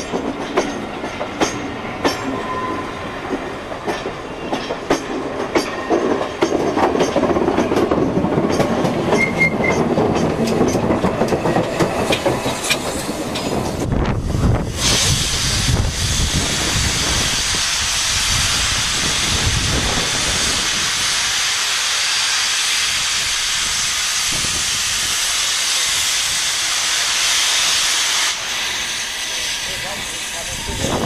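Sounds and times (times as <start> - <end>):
steam hissing: 11.4 - 31.0.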